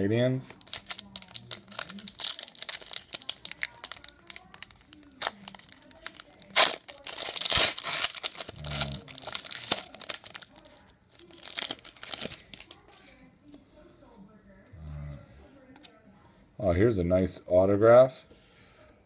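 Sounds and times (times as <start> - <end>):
foil pack crinkling and tearing: 0.5 - 13.0.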